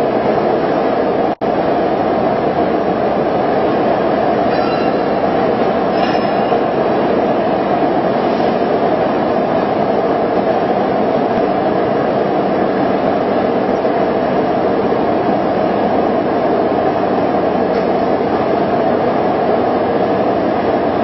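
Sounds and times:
factory machinery running: 0.0 - 21.0.

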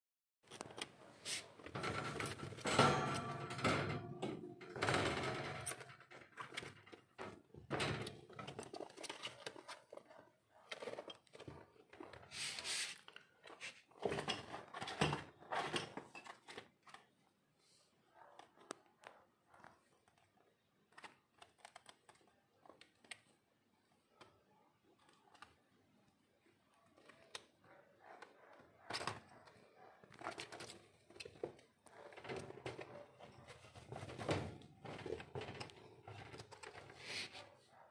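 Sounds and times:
wire cage bars rattling: 1.7 - 9.1.

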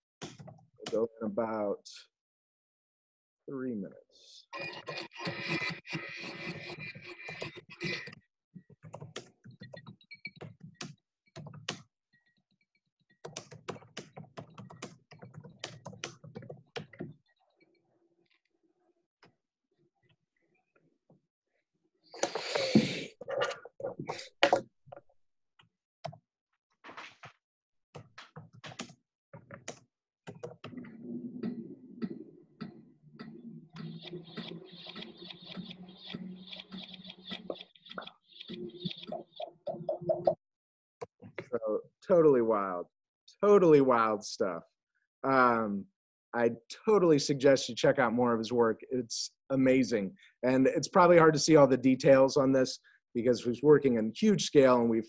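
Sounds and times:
scratchy noises: 4.5 - 8.2, 22.2 - 24.6
rapid clicks and taps: 6.5 - 11.9, 13.1 - 17.2, 32.0 - 40.4
ticks and clicks: 32.0 - 40.4.

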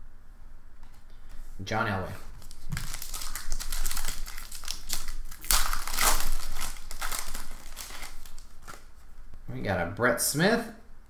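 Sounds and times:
foil wrapper crinkling: 2.2 - 9.5.

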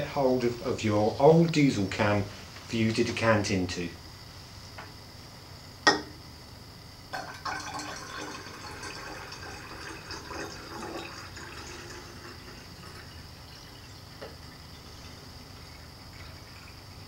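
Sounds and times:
glass flask knock: 5.9 - 6.2
water trickling and splashing: 7.2 - 17.0.

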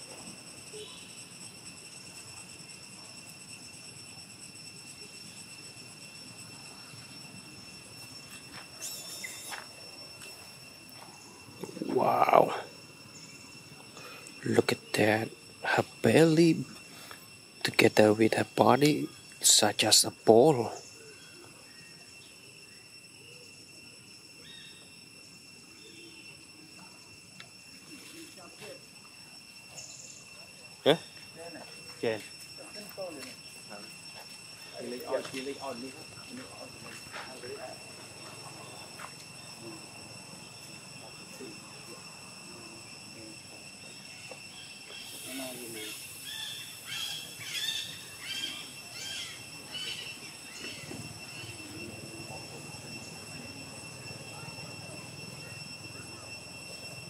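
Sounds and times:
insect chorus drone: 0.0 - 57.0.

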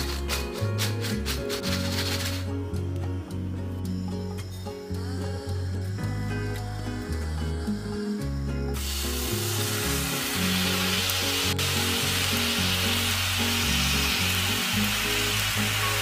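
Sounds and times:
water sizzling in hot pan: 0.0 - 2.5, 8.8 - 16.0
background music: 0.0 - 16.0.

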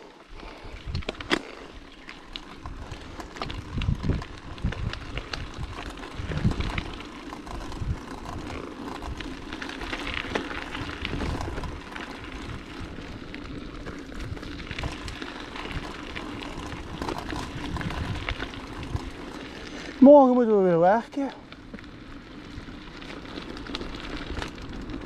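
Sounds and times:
bicycle tyres on dirt: 0.0 - 25.0
bike rattling and clicking: 0.0 - 25.0
wind on microphone: 2.7 - 7.0, 14.2 - 19.3.

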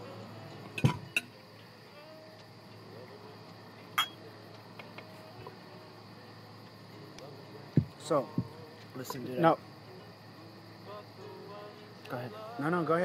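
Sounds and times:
faint steady hum: 0.0 - 13.0
dishes knocking: 0.8 - 1.2
glass clink ringing: 0.8 - 1.3, 4.0 - 4.2.

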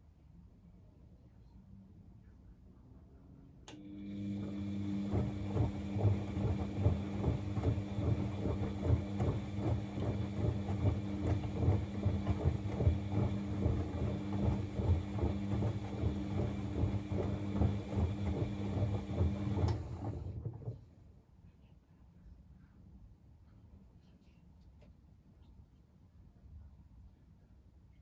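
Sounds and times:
washing machine motor hum: 3.7 - 20.9
water and laundry sloshing: 4.0 - 20.8.

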